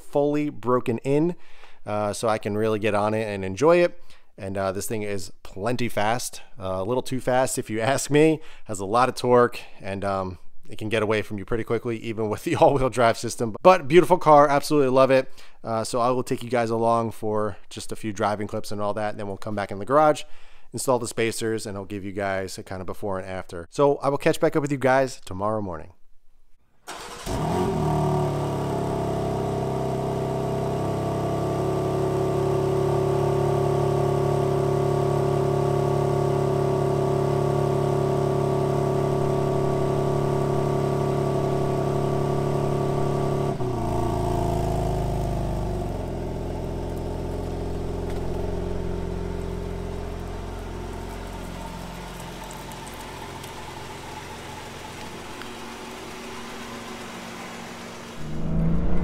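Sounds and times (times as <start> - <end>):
car engine starting and idling: 26.8 - 59.0.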